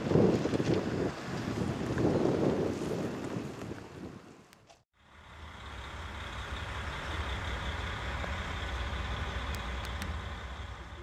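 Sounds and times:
engine running: 5.0 - 11.0.

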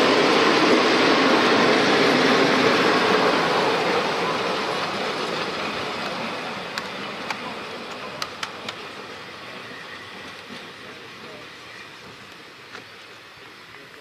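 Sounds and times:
train wheels rumbling: 0.0 - 14.0
wheels clicking over track: 3.8 - 14.0.

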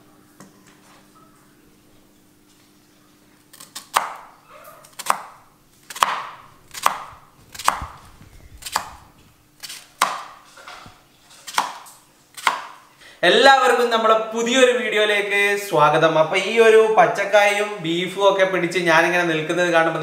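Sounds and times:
knife chopping on cutting board: 3.7 - 4.3, 4.9 - 8.0, 8.6 - 12.8.

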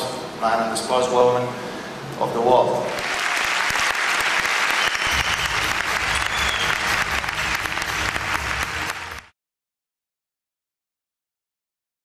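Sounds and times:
large audience applauding: 2.9 - 9.3.

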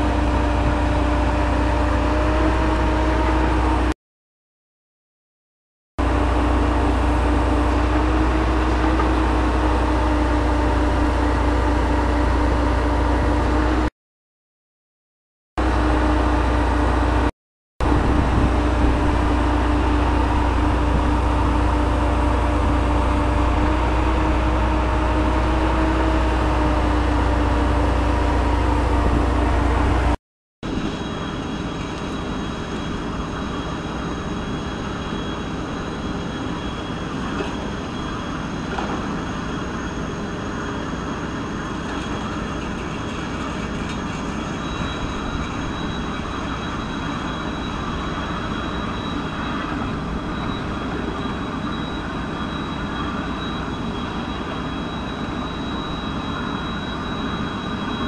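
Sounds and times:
deep engine rumble: 6.0 - 13.9, 15.6 - 58.0
mid-pitched drill whine: 6.0 - 13.9, 15.6 - 58.0
faint high whines: 15.8 - 58.0.

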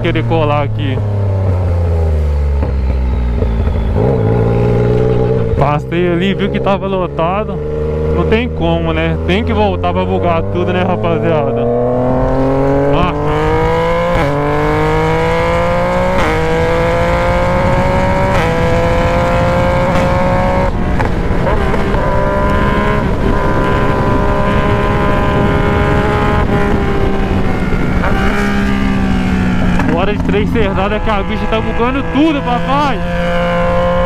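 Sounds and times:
motorcycle engine at full throttle: 0.0 - 34.0
wind rushing over microphone: 7.7 - 34.0.

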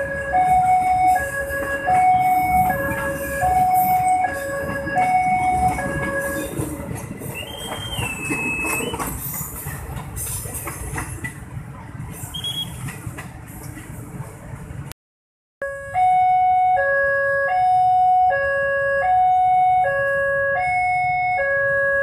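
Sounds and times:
two-tone electronic warning alarm: 0.0 - 6.7, 15.6 - 22.0
train wheels clicking over rail joints: 1.6 - 14.2
high wheel squeal: 7.3 - 9.3.

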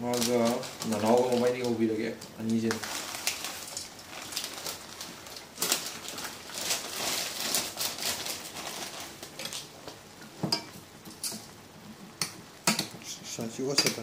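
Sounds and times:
plastic packet crinkling: 0.0 - 10.0.

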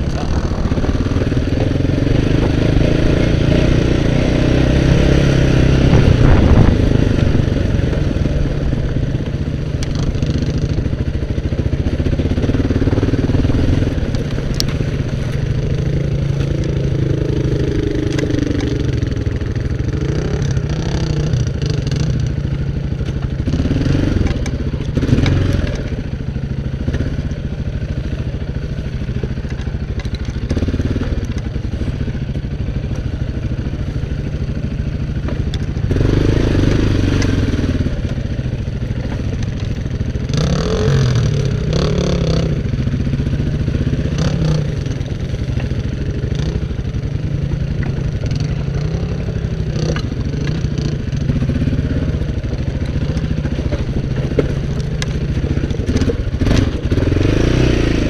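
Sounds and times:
quad engine revving under load: 0.0 - 58.0.

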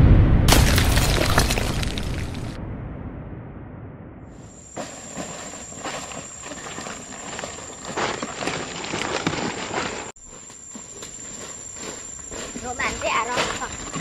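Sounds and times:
dry leaves crunching underfoot: 4.8 - 14.0.

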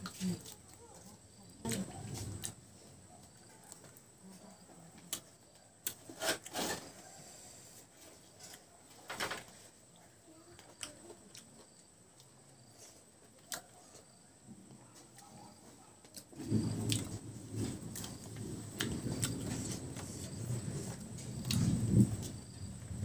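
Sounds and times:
close-up chewing: 10.7 - 21.7.

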